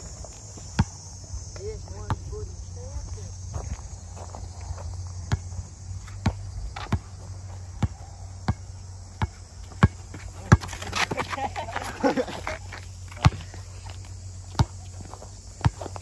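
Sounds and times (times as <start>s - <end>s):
basketball bouncing on hard court: 7.8s - 8.6s, 9.2s - 11.4s.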